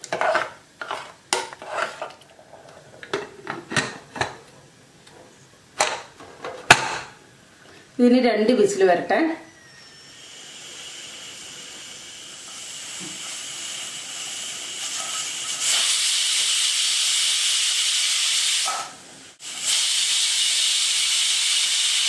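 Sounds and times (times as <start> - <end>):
pressure cooker steam whistling: 9.5 - 22.0
steam hissing: 9.5 - 22.0.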